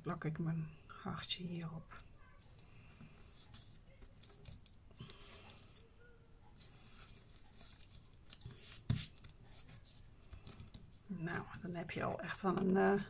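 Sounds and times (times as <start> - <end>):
faint paper rustling: 1.9 - 12.8.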